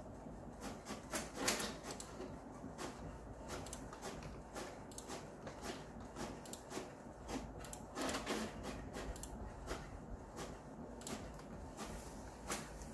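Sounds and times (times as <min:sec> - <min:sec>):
computer mouse clicks: 0:01.3 - 0:02.3, 0:03.5 - 0:09.8, 0:11.0 - 0:11.6.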